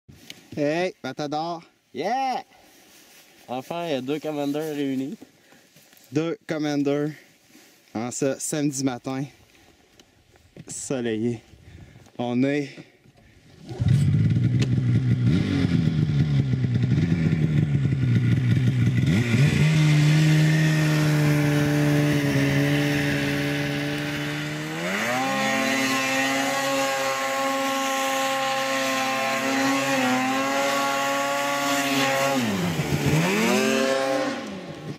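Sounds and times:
snowmobile engine revving: 13.5 - 34.9.

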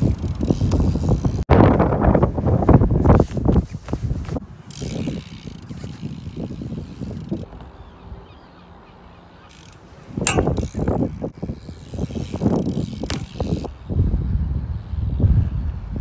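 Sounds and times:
bike clicking and rattling: 0.0 - 2.0, 3.3 - 8.0, 9.2 - 16.0
wind rumble on microphone: 0.0 - 8.3, 9.9 - 16.0
bike knocking on ramp: 10.3 - 11.0, 12.8 - 13.7.

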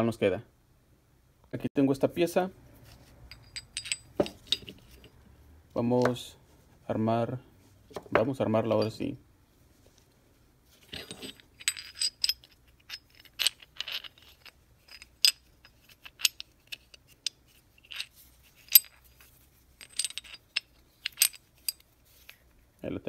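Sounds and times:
small steel parts clicking: 3.3 - 5.1, 10.9 - 22.4.

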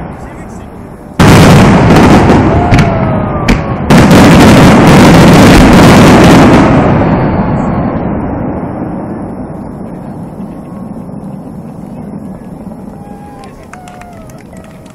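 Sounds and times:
fireworks shells booming: 0.0 - 14.9
sharp crack: 1.2 - 7.2.

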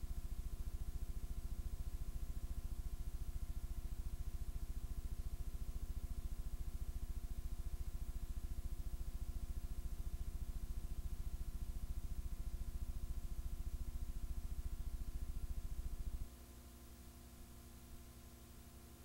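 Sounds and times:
mains hum: 0.0 - 19.0.

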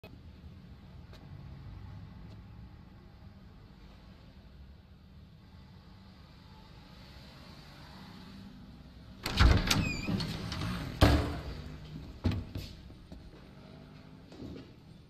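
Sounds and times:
door rattling and banging shut: 9.2 - 12.6.

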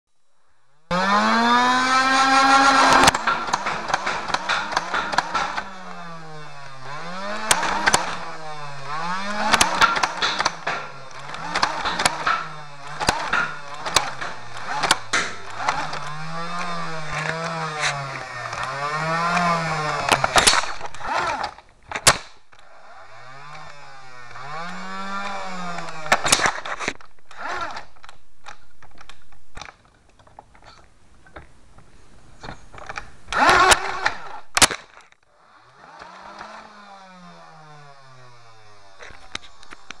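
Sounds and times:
engine revving: 0.9 - 21.6, 22.5 - 28.0, 33.3 - 34.4, 35.4 - 40.0
sharp clicks and knocks: 1.9 - 22.8, 23.4 - 35.3, 38.9 - 40.0.

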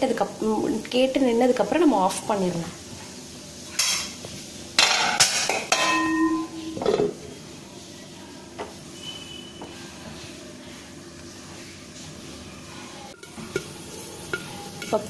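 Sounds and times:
oil sizzling: 0.0 - 15.0
metal pan lid clanking: 4.8 - 7.2.

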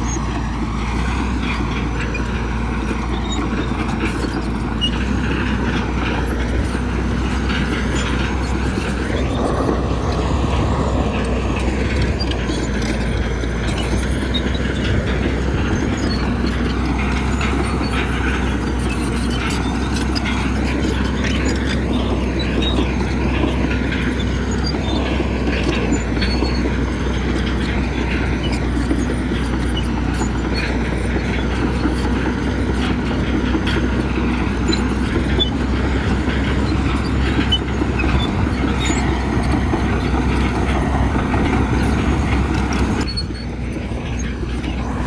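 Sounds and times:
diesel machinery engine: 0.0 - 45.0
metallic clatter: 0.0 - 45.0.

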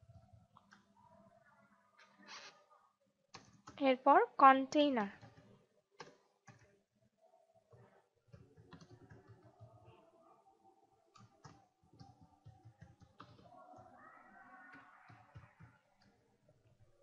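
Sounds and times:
computer keyboard typing: 5.1 - 6.7, 8.3 - 9.9, 11.1 - 13.9.

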